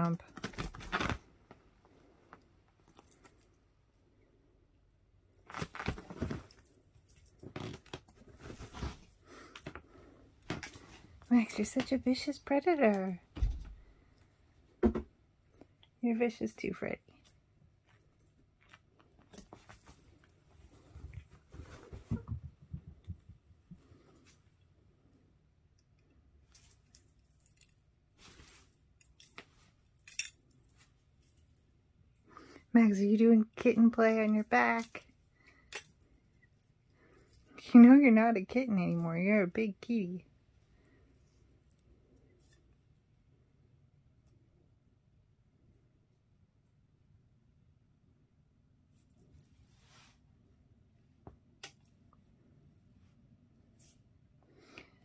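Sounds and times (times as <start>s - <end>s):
cat toy jingling and rattling: 0.0s - 1.2s, 5.4s - 9.8s, 17.2s - 21.8s, 26.5s - 36.5s
cats scuffling and pouncing: 0.3s - 1.6s, 5.5s - 11.2s, 18.0s - 24.5s.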